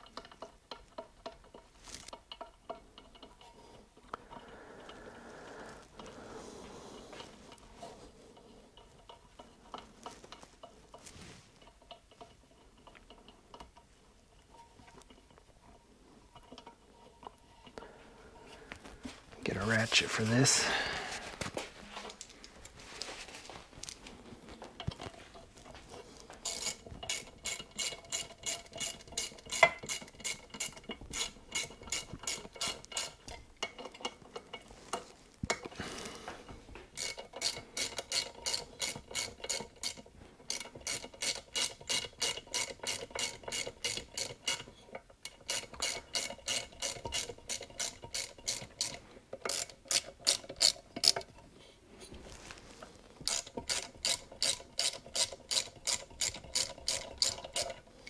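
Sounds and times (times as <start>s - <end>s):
hand ratchet clicking: 26.4s - 34.5s, 36.9s - 51.4s, 53.2s - 58.0s.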